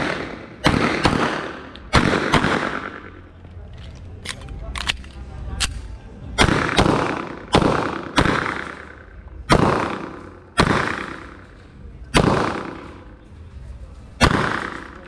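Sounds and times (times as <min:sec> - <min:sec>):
pistol shots echoing: 0:00.0 - 0:03.2, 0:05.6 - 0:11.5, 0:12.1 - 0:13.1, 0:14.2 - 0:15.0.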